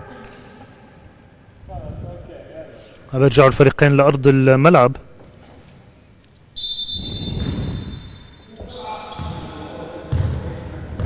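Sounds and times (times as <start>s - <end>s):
referee's whistle blast: 6.6s - 9.4s
basketball bouncing on court: 9.1s - 9.5s, 10.1s - 11.0s.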